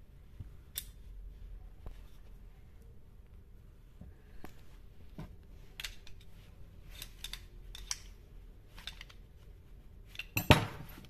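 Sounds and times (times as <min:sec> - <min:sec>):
screwdriver clicking on metal: 0:07.0 - 0:08.2.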